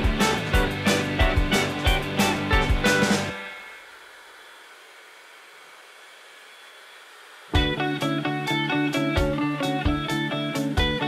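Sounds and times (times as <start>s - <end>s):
music with guitar and drums: 0.0s - 3.8s, 7.6s - 11.0s
hair dryer blowing: 0.0s - 11.0s.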